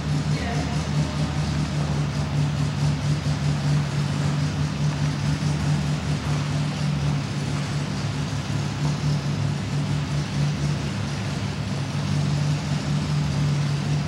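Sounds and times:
car engine idling: 0.0s - 14.0s.

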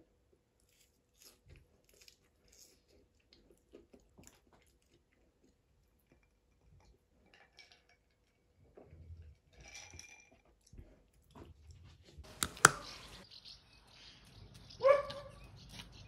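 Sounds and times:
person chewing crunchy fries: 0.6s - 5.5s
small birds chirping: 12.3s - 16.0s.

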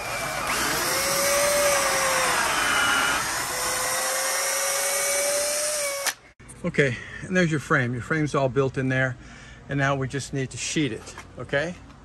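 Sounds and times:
power drill boring into wood: 0.0s - 6.2s.

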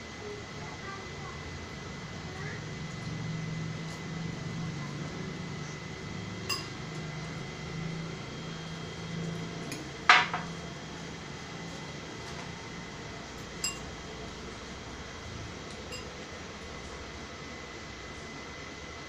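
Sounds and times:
steady low hum: 0.0s - 19.0s
glass clinking on table: 6.5s - 6.7s, 13.6s - 13.9s
tableware click: 6.5s - 6.7s.

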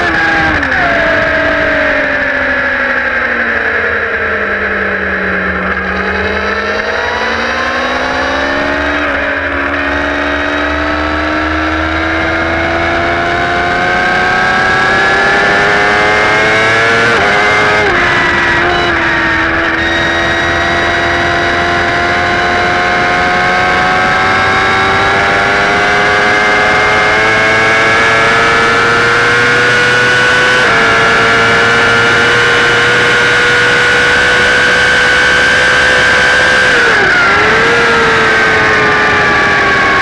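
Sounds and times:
motorcycle engine at high revs: 0.0s - 40.0s
wind rush: 13.4s - 25.4s.

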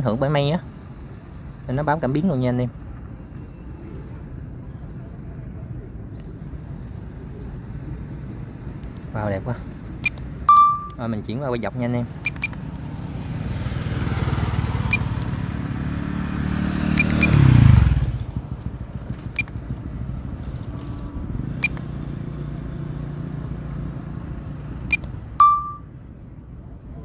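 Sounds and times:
steady engine hum: 0.0s - 26.7s
short beep: 10.5s - 11.0s, 25.4s - 25.9s
vehicle engine passing: 11.3s - 25.4s.

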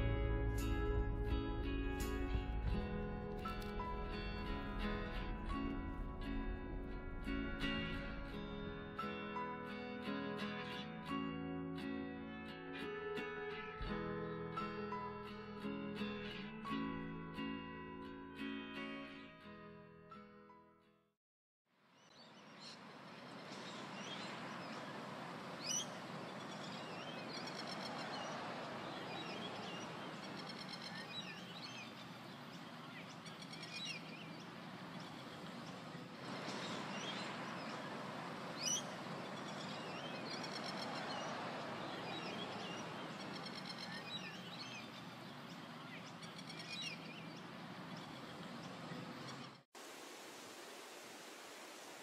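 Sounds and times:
steady rushing background: 0.0s - 9.2s
birds chirping and trilling: 22.0s - 49.6s.

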